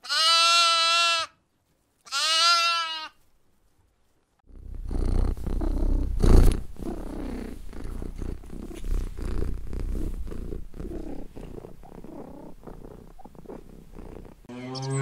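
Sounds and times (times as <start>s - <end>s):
cat purring: 4.5s - 14.5s.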